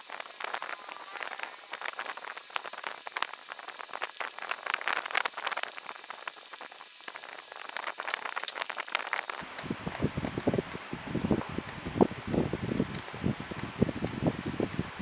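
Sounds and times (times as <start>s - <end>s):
paper rustling and crackling: 0.0s - 9.4s.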